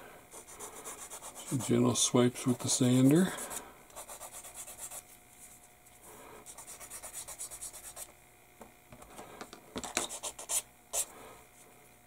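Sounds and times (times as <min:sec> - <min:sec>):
sanding stick rubbing plastic: 0:00.4 - 0:01.8, 0:04.0 - 0:05.0.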